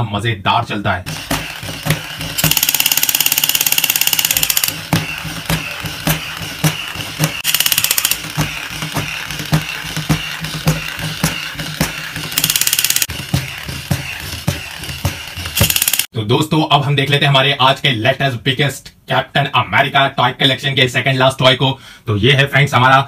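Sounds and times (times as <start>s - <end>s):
electronic machine-gun rattle: 1.1s - 16.1s
toy plastic limbs clicking: 1.5s - 16.1s.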